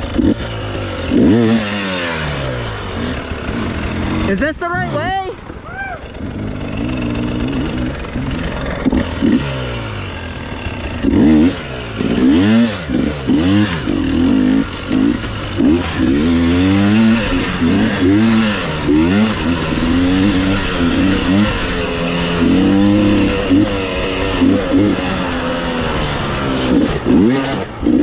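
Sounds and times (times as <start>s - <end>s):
dirt bike engine revving: 0.0s - 28.0s.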